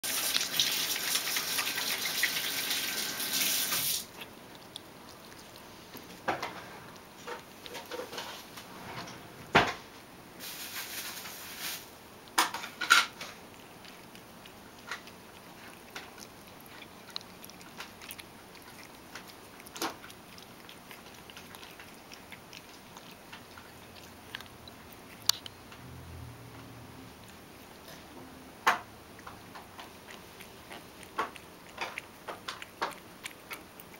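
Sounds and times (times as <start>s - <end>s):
cat mouth clicks and smacks: 3.7s - 8.4s, 12.3s - 25.6s, 28.7s - 33.9s.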